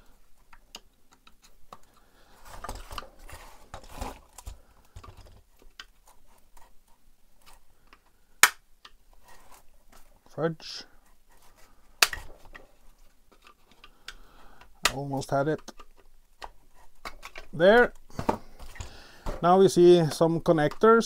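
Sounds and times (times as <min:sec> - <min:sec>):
plastic snapping: 0:07.9 - 0:09.0, 0:12.0 - 0:12.6, 0:13.3 - 0:19.4.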